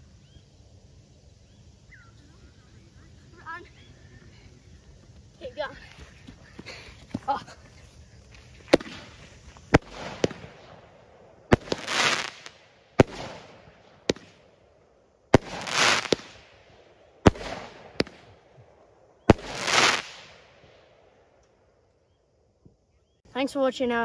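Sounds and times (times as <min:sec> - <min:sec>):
fireworks fizzing hiss: 0:00.0 - 0:21.0
fireworks bangs: 0:01.8 - 0:14.6, 0:15.3 - 0:21.0.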